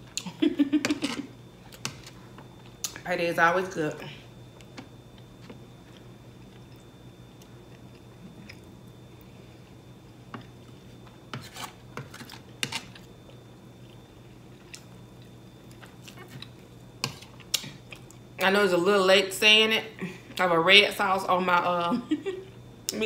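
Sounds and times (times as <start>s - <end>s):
faint steady hum: 0.0s - 23.0s
chewing: 12.2s - 18.2s.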